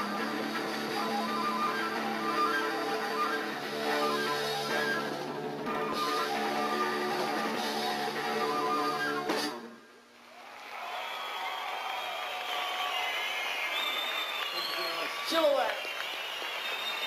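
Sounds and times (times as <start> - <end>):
live rock band: 0.0 - 9.7.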